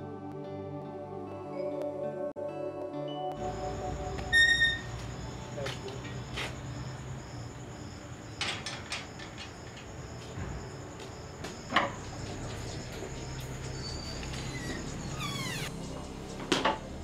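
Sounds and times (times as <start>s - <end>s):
crickets chirping: 3.4s - 17.0s
door creaking open: 4.1s - 5.2s, 8.2s - 11.0s, 11.6s - 15.7s
iron gate metal clicks: 8.2s - 10.1s.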